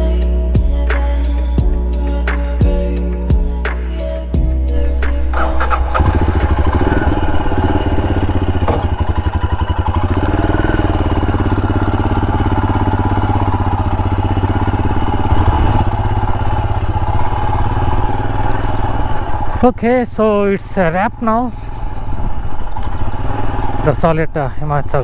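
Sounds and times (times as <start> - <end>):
motorcycle engine running: 4.4 - 25.0.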